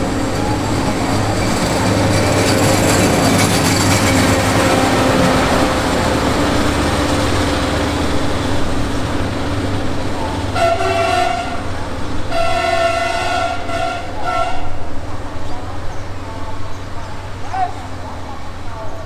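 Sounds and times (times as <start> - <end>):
diesel engine hum: 0.0 - 19.0
wheels rumbling on rails: 0.0 - 19.0.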